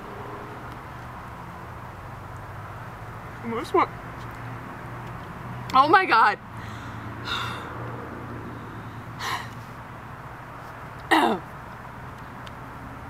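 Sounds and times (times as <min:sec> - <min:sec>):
woman coughing: 0:11.1 - 0:11.5.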